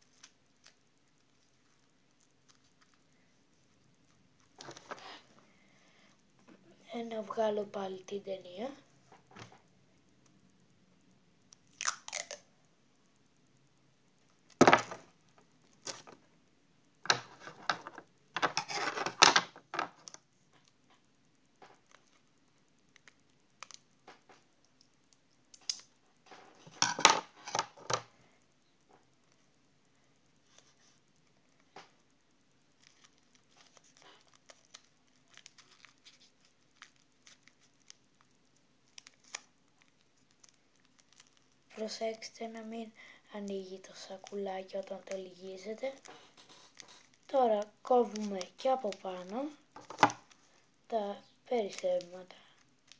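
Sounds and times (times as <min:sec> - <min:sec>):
paper and plastic bag crinkling: 0:32.8 - 0:38.2, 0:43.8 - 0:50.6.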